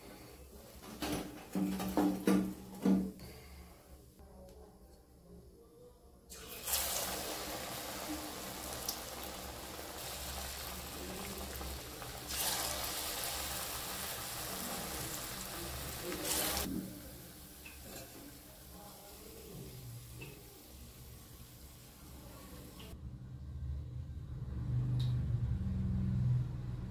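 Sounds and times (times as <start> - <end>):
food deep-frying in hot oil: 6.3 - 23.0.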